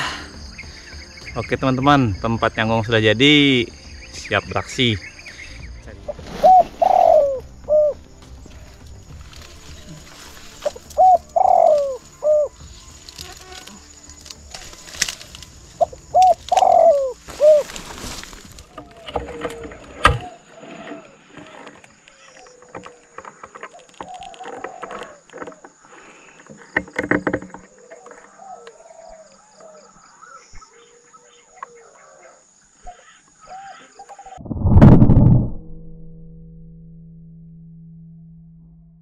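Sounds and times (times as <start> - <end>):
doves cooing: 6.1 - 8.0, 8.6 - 34.4.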